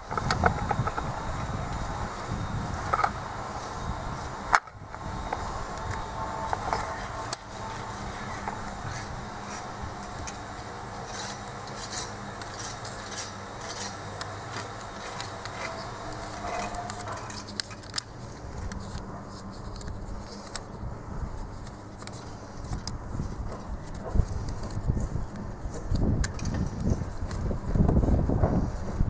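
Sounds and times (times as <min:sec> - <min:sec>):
model railway track clicking: 0:02.8 - 0:03.2, 0:04.5 - 0:18.1.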